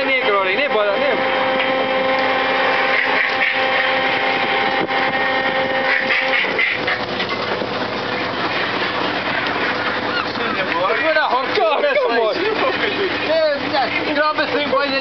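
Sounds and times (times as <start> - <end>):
boat engine running: 0.0 - 15.0
steady hum: 0.0 - 15.0.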